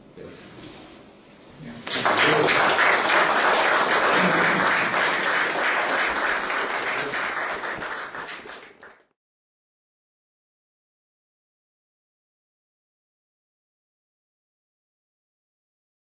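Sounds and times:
audience applauding: 1.9s - 9.1s.

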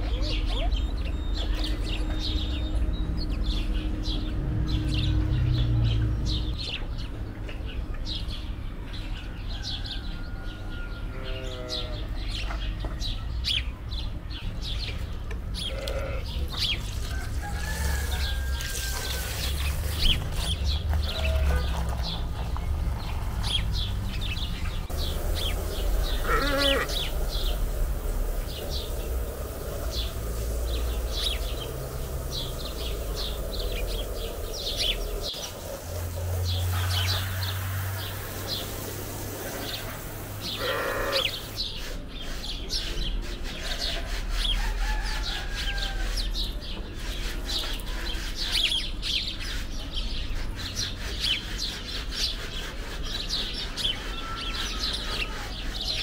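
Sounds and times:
small birds chirping: 0.0s - 10.0s, 11.2s - 56.0s
livestock bleating: 11.1s - 12.0s, 15.7s - 16.3s, 26.2s - 27.1s, 40.6s - 41.4s.

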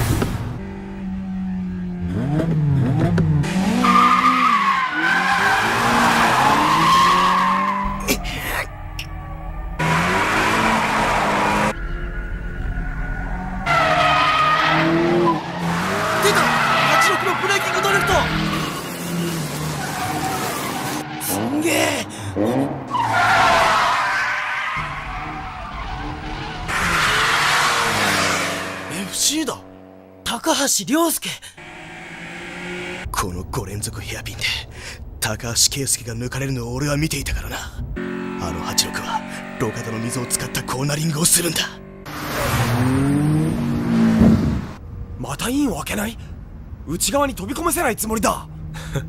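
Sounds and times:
engine hum: 0.1s - 16.6s
racing car engine revving: 0.5s - 8.0s, 38.0s - 44.8s
tyres squealing: 13.1s - 21.6s.

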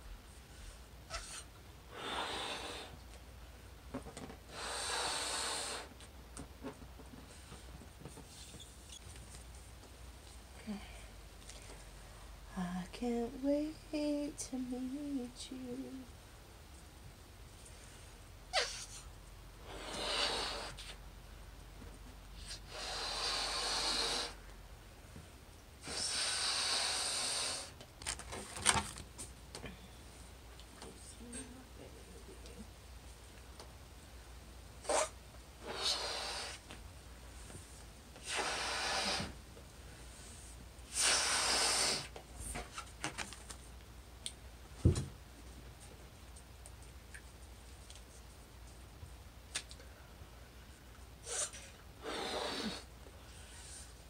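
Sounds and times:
person blowing up a balloon: 1.1s - 3.0s, 4.5s - 6.0s, 18.5s - 19.0s, 19.6s - 21.0s, 22.4s - 24.4s, 25.8s - 27.8s, 34.8s - 36.7s, 38.2s - 39.4s, 40.8s - 42.2s, 51.2s - 53.8s.

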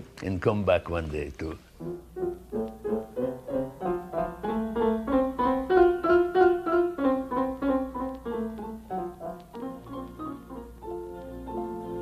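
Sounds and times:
piano music: 1.8s - 12.0s.

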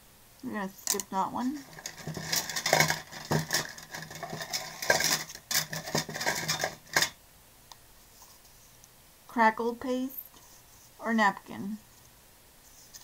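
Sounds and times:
wooden sticks clattering: 0.9s - 7.2s.

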